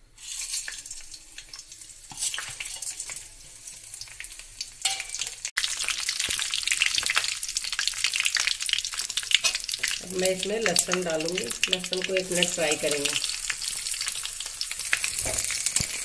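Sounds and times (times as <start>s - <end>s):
spices sizzling in hot oil: 0.0s - 16.0s
spatula stirring spices: 0.2s - 4.0s.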